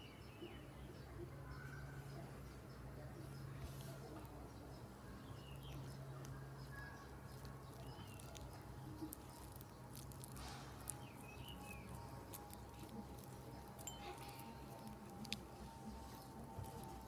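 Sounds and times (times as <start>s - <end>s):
slime squelching and clicking: 7.3s - 17.0s.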